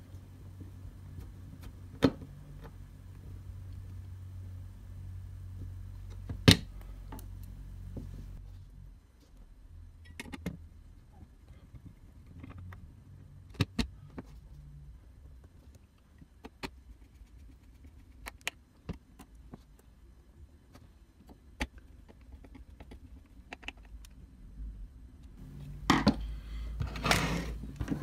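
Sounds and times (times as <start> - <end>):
parts scraping and clattering: 25.5 - 28.0.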